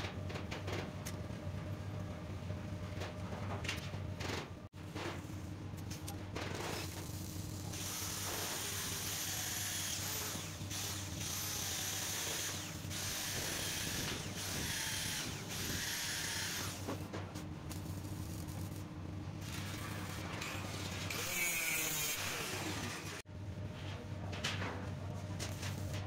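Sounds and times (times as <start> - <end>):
power tool running: 7.7 - 16.9.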